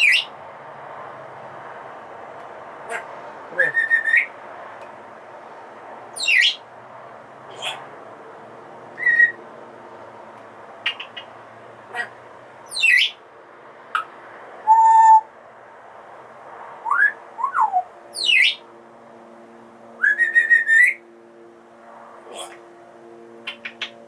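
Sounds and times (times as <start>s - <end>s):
parrot whistling: 0.0s - 0.3s, 3.6s - 4.3s, 6.2s - 6.6s, 9.0s - 9.4s, 12.7s - 13.2s, 14.0s - 15.3s, 16.8s - 18.6s, 20.0s - 21.0s
parrot clicking: 10.8s - 11.3s, 23.4s - 24.0s.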